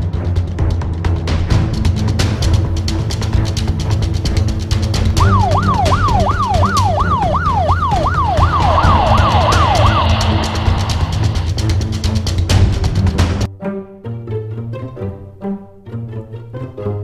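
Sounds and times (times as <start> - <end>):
background music: 0.0 - 17.0
siren yelping: 5.2 - 11.6.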